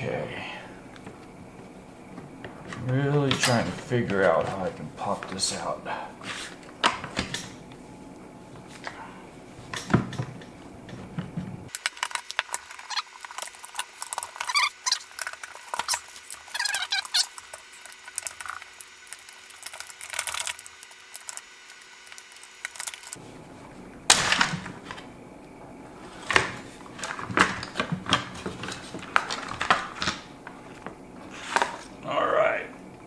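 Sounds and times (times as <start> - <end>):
plastic parts clicking and rattling: 11.7 - 23.2, 26.1 - 31.9.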